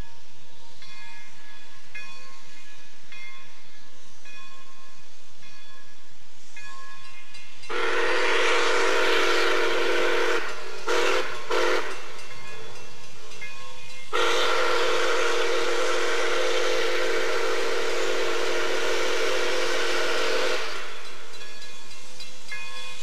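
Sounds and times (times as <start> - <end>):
railroad crossing bell ringing: 0.0 - 23.0
steam hissing: 0.0 - 23.0
steam locomotive whistle: 7.6 - 12.8, 14.1 - 21.4.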